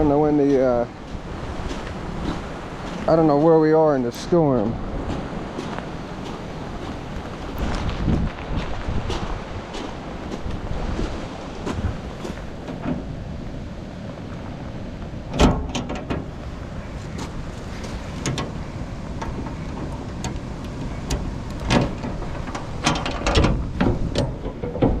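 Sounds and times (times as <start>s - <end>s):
rain: 0.0s - 25.0s
wind: 0.0s - 25.0s
padlock metal clicks and clanks: 19.2s - 25.0s.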